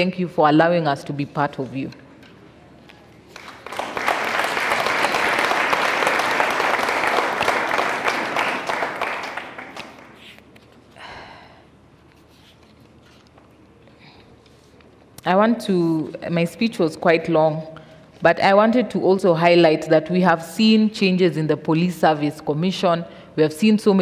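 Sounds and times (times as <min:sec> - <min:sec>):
audience applauding: 0:03.3 - 0:10.2.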